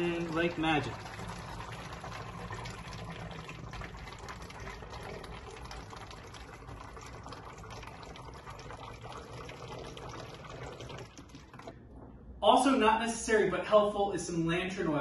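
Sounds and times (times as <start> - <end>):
water pouring: 0.0 - 12.2
water gurgling: 0.0 - 12.8.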